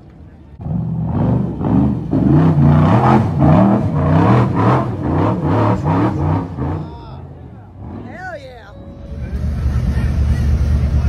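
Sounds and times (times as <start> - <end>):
buggy engine revving: 0.6 - 11.0.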